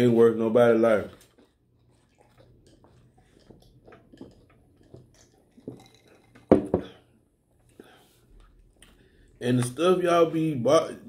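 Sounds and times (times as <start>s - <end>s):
people chewing and sipping: 1.0s - 9.4s.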